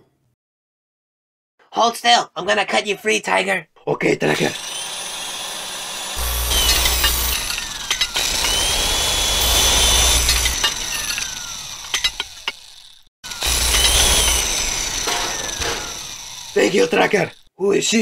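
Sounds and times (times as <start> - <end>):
circular saw cutting metal: 4.4 - 17.5.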